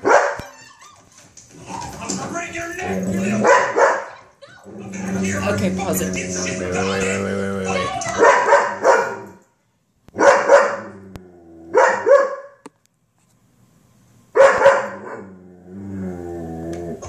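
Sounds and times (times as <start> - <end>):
dog barking: 0.0 - 0.6, 3.4 - 4.3, 8.2 - 9.4, 10.2 - 10.9, 11.7 - 12.6, 14.4 - 15.3.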